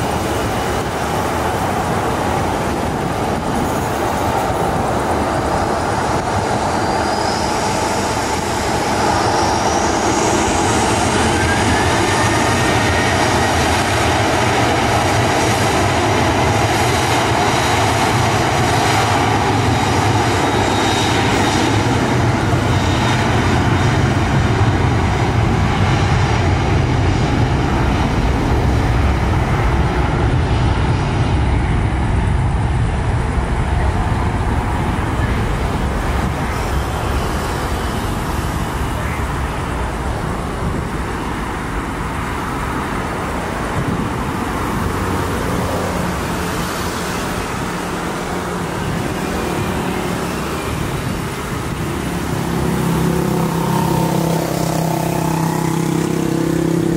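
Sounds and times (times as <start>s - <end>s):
jet engine rumble: 0.0s - 56.9s
jet engines whining: 0.0s - 56.9s.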